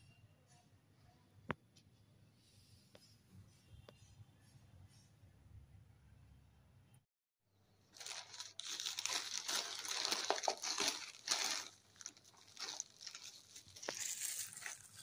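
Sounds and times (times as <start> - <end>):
plastic mailer and bubble wrap crinkling: 7.9 - 15.0.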